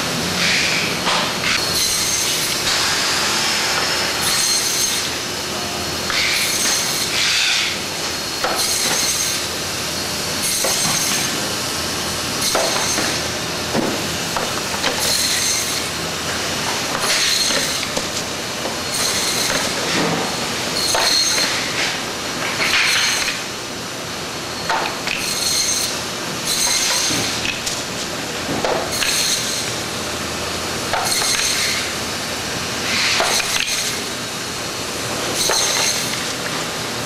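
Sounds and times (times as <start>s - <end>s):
steady machine noise: 0.0s - 37.0s
band saw metallic screech: 1.6s - 2.5s, 4.2s - 5.2s, 15.0s - 15.9s, 17.1s - 17.8s, 18.9s - 19.6s, 20.8s - 21.7s, 25.2s - 25.9s, 26.5s - 27.3s.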